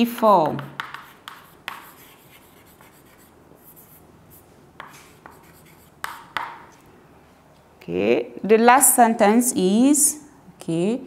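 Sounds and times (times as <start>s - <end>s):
chalk tapping on blackboard: 0.2s - 4.0s, 4.8s - 6.8s
chalk scratching on blackboard: 0.2s - 6.6s.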